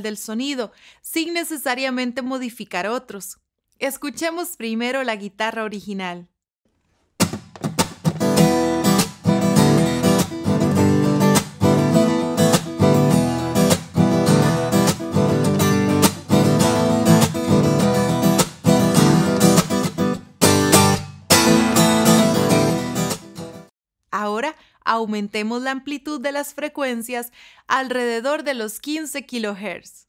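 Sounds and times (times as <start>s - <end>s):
acoustic guitar strumming chords: 7.2s - 23.7s.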